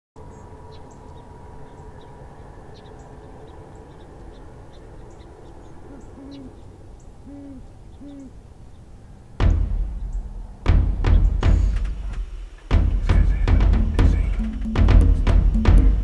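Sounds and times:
owl hooting: 0:00.3 - 0:08.5
drum music: 0:09.4 - 0:16.0
heavy drum hit: 0:09.4 - 0:16.0.

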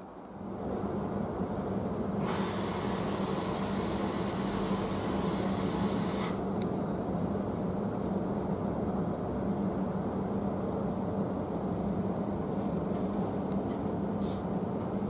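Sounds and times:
train carriage hum: 0:00.0 - 0:15.0
train carriage hiss: 0:02.2 - 0:06.5, 0:14.2 - 0:14.6.

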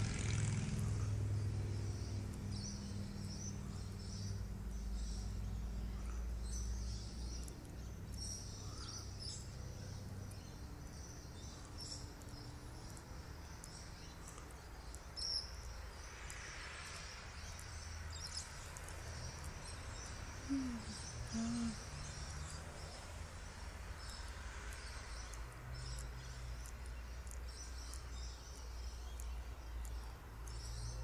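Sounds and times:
birds chirping: 0:00.0 - 0:31.0
steady low hum: 0:00.6 - 0:23.7
short low calls: 0:20.4 - 0:21.9.

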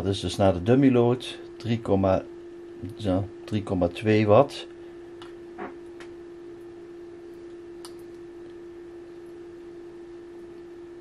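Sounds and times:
low electronic tone: 0:05.5 - 0:10.4.

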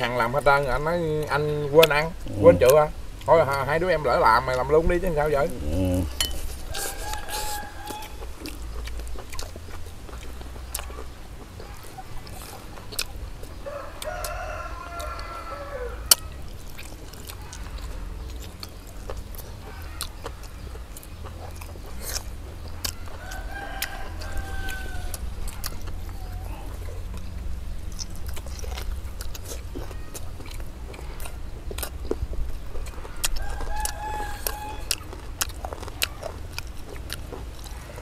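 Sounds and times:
rooster crowing: 0:05.6 - 0:08.3, 0:13.6 - 0:16.4, 0:22.9 - 0:25.4, 0:33.0 - 0:35.1.

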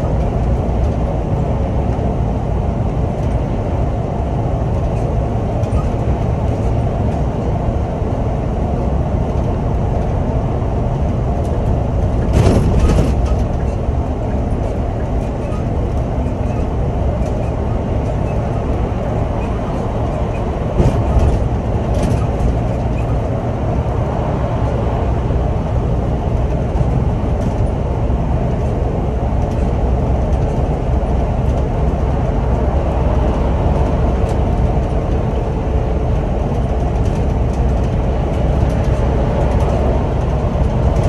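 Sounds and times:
bus engine and road rumble: 0:00.0 - 0:41.0
light ticks and rattles: 0:33.1 - 0:41.0.

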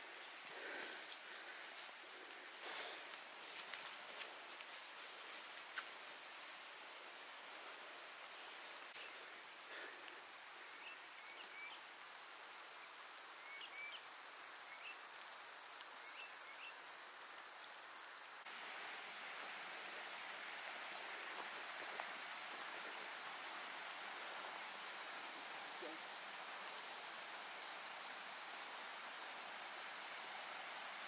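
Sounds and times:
small birds chirping: 0:00.0 - 0:15.2
faint hiss: 0:00.0 - 0:31.0
loud steady hiss: 0:00.0 - 0:31.0.

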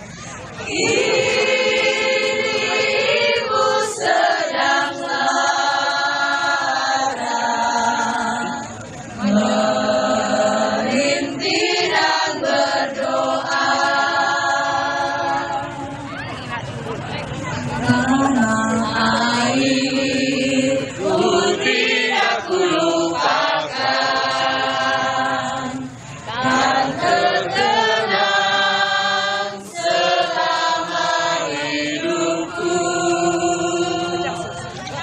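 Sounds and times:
crowd singing along: 0:00.0 - 0:35.0
woman singing into microphone: 0:17.8 - 0:21.7.

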